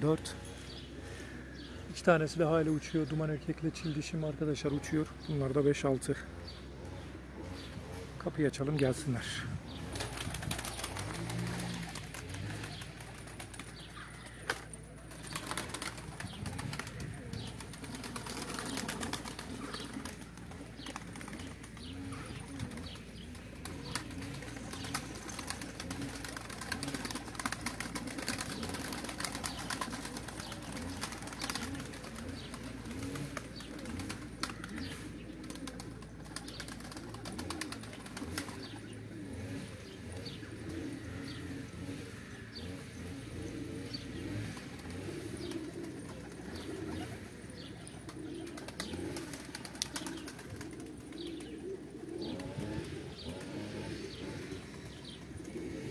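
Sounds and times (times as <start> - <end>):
pigeons cooing: 0.0 - 55.9
wings flapping: 9.7 - 40.8, 44.2 - 55.9.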